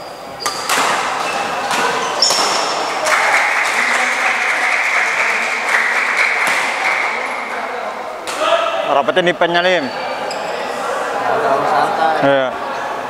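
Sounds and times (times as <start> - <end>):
shoes squeaking on court: 0.0 - 2.9, 9.8 - 10.6
hubbub of voices: 0.0 - 13.0
racket hitting shuttlecock: 0.4 - 3.2, 6.4 - 7.2.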